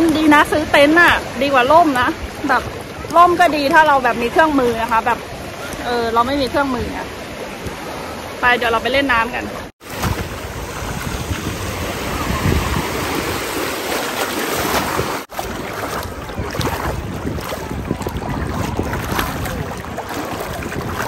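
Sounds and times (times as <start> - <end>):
surf rushing: 4.1 - 21.0
wind buffeting microphone: 9.0 - 21.0.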